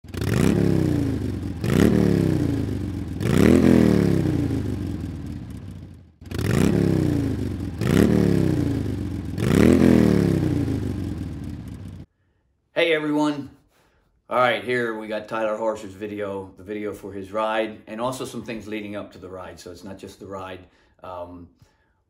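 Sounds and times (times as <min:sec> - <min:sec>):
motorcycle engine revving: 0:00.0 - 0:12.1.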